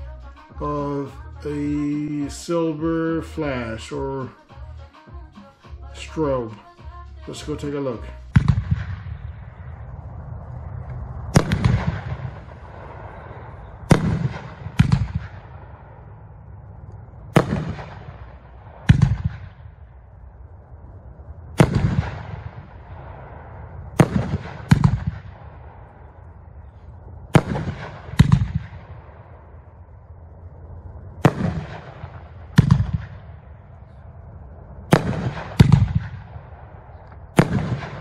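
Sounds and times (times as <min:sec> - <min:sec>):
firework shells booming: 0:08.3 - 0:16.3, 0:17.1 - 0:20.2, 0:21.5 - 0:30.0, 0:31.1 - 0:34.0, 0:34.8 - 0:38.0.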